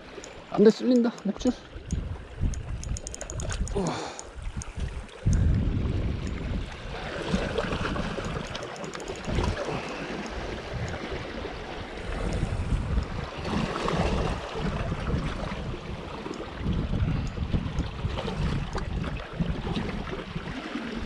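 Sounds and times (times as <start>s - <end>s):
fast ticks: 0.2s - 4.7s, 8.1s - 11.0s
wind buffeting microphone: 1.4s - 21.0s
waves washing against rocks: 5.9s - 21.0s.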